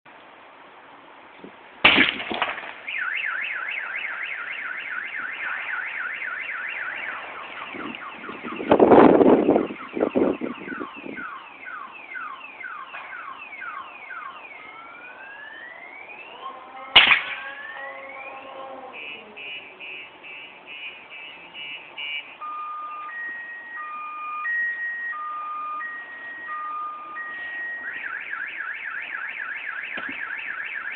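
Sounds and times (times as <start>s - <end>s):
loud bang: 1.9s - 2.8s, 17.0s - 17.6s
car alarm wailing: 2.9s - 30.9s.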